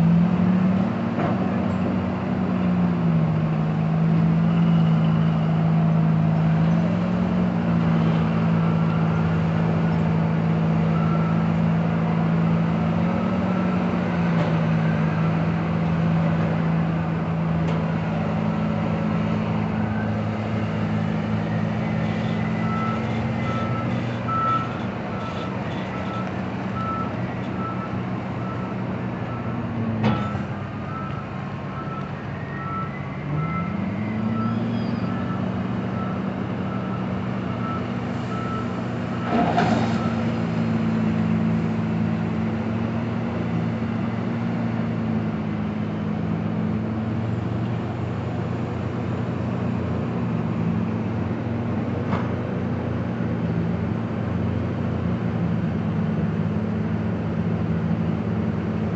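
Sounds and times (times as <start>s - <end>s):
excavator diesel engine droning: 0.0s - 58.9s.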